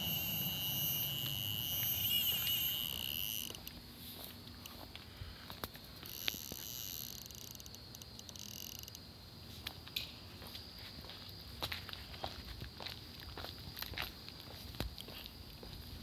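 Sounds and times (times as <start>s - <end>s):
high-pitched electronic alarm tone: 0.0s - 3.7s.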